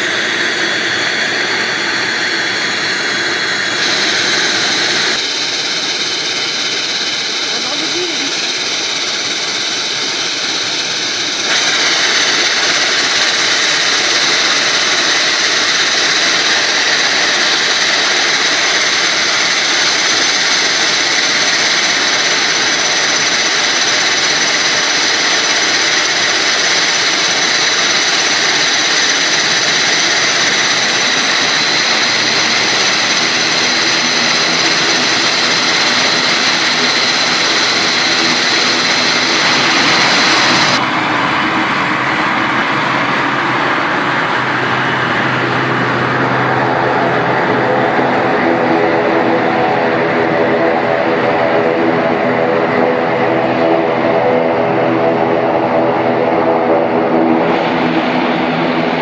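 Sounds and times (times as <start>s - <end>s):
turboprop engines whining: 0.0s - 59.0s
lower droning tone: 26.0s - 59.0s.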